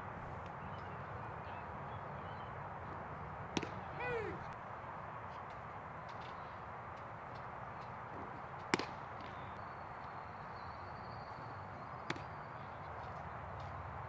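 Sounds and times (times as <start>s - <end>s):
ballpark background noise: 0.2s - 9.6s, 11.3s - 14.0s
baseball popping into mitt: 3.5s - 4.4s
sharp crack: 3.6s - 4.3s.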